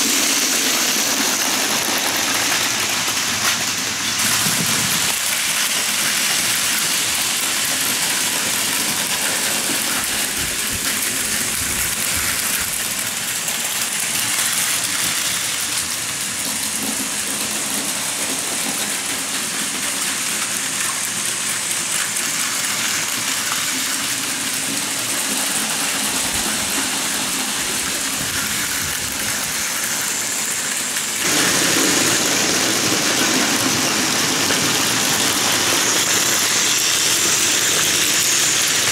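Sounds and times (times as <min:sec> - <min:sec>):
toy train whirring rattle: 0:00.0 - 0:38.9.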